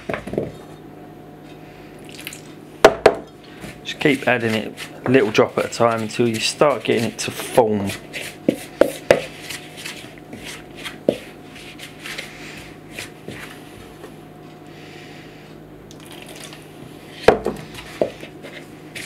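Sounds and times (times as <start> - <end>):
fingers rubbing mashed potato: 3.8 - 13.6.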